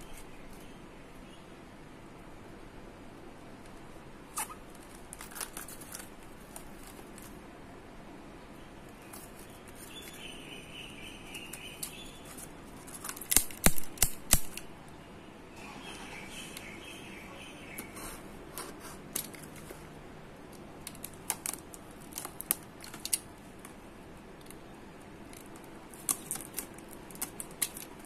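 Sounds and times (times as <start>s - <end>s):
plastic film rustling: 4.4s - 7.4s, 11.3s - 14.1s, 20.8s - 23.8s, 25.2s - 28.0s
loud sharp clicks: 13.2s - 14.7s.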